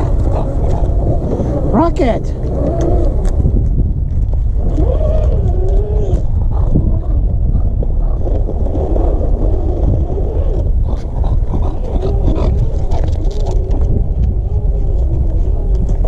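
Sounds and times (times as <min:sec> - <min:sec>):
wavering mid-pitched drone: 0:00.0 - 0:03.9
wind buffeting microphone: 0:00.0 - 0:16.0.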